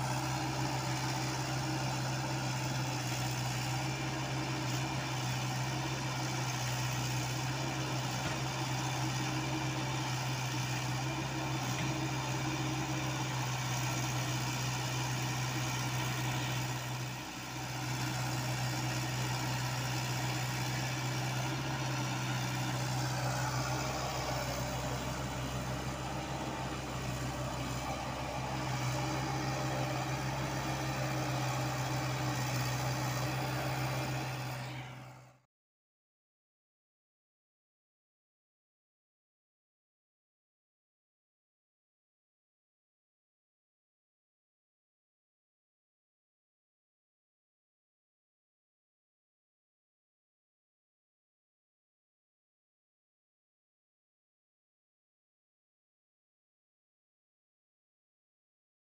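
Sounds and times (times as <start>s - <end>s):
excavator diesel engine running: 0.0s - 35.4s.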